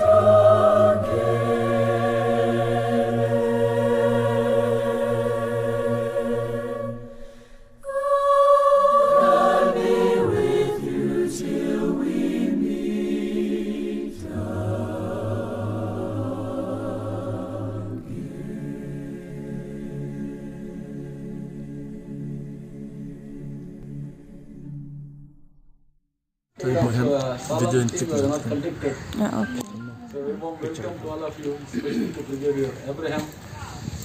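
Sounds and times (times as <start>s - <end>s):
choir singing sustained chords: 0.0s - 26.0s.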